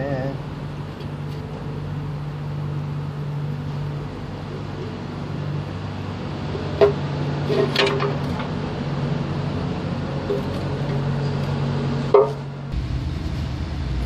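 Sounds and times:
steady low hum: 0:12.1 - 0:14.0.

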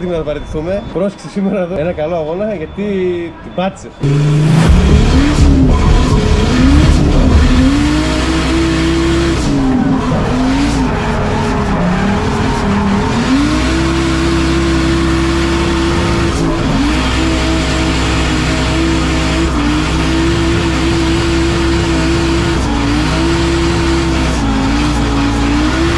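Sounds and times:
car engine revving: 0:04.0 - 0:25.9
tyres squealing: 0:08.9 - 0:17.6.

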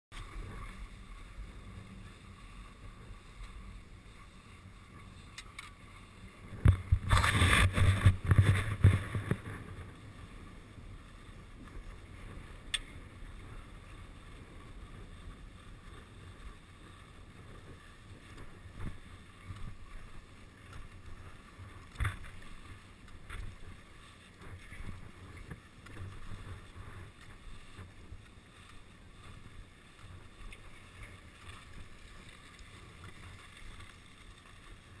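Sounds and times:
skis sliding over packed snow: 0:00.1 - 0:35.0
wind on microphone: 0:05.9 - 0:32.0.

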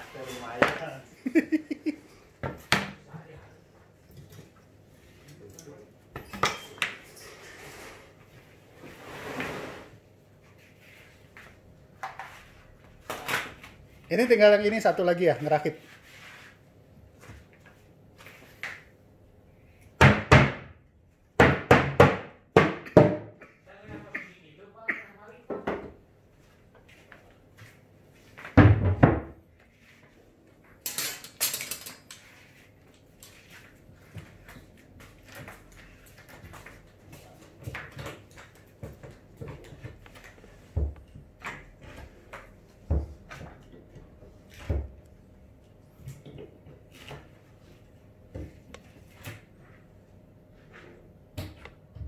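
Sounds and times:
nails hammered into plywood: 0:20.0 - 0:20.8, 0:21.4 - 0:23.3
wooden panels knocking and clattering: 0:21.4 - 0:23.4.

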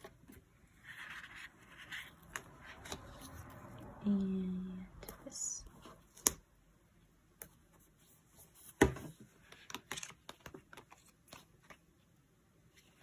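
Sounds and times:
small clicks and paper rustles: 0:00.0 - 0:03.7, 0:09.4 - 0:12.1.

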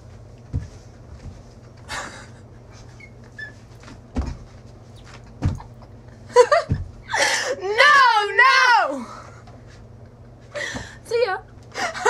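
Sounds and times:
steady low hum: 0:00.0 - 0:12.0
dull low thumps: 0:04.0 - 0:07.0.

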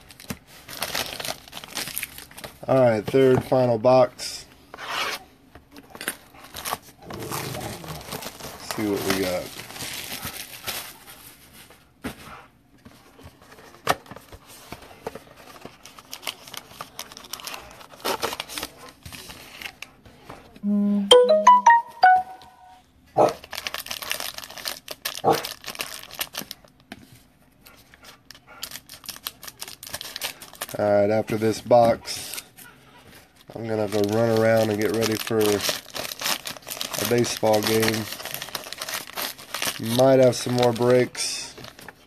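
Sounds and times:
plastic wrap crinkling and tearing: 0:00.0 - 0:03.5, 0:06.4 - 0:11.7, 0:13.4 - 0:19.9, 0:23.3 - 0:26.9, 0:28.3 - 0:32.5, 0:33.3 - 0:42.0.

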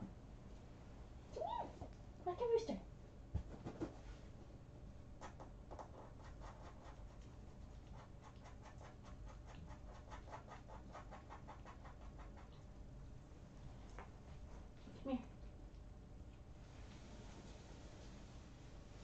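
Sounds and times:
kitten scratching: 0:05.2 - 0:12.8.

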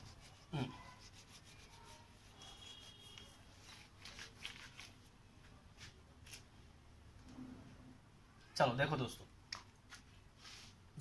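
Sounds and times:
cloth wiping a whiteboard: 0:00.0 - 0:04.9.

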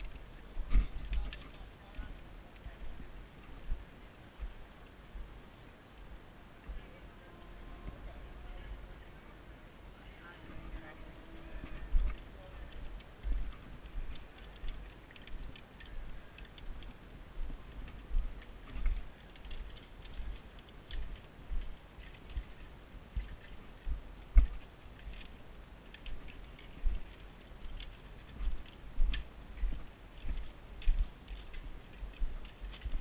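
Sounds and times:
footsteps on a dirt trail: 0:00.0 - 0:05.3, 0:10.4 - 0:33.0
carabiners clinking and jangling: 0:00.9 - 0:03.0, 0:11.0 - 0:33.0.

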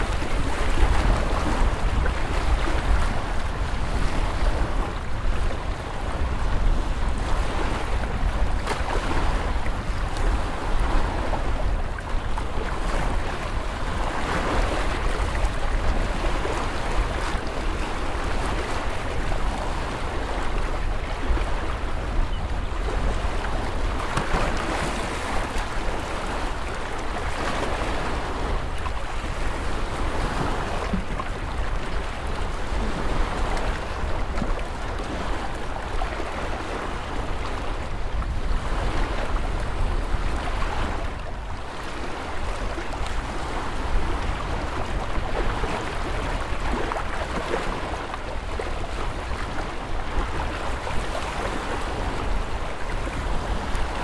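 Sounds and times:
lake water lapping on shore: 0:00.0 - 0:54.0
wind rumbling on microphone: 0:00.0 - 0:54.0.

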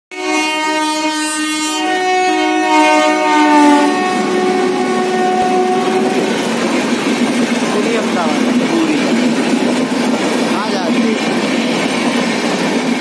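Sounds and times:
two-tone train horn: 0:00.1 - 0:06.5
train rushing past: 0:01.7 - 0:13.0.

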